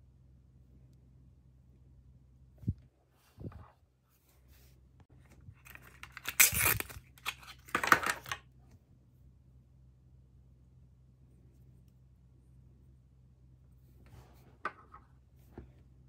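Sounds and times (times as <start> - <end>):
paper wrapper crinkling and tearing: 5.5 - 8.4.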